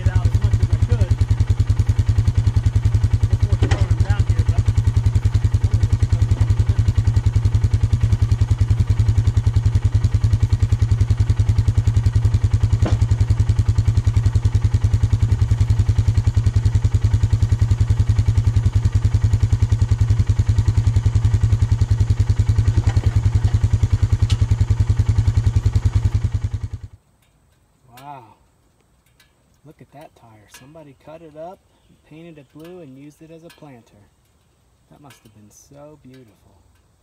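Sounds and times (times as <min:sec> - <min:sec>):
vehicle engine idling: 0:00.0 - 0:37.0
tires knocking into wooden trailer: 0:03.5 - 0:04.1, 0:12.7 - 0:13.4.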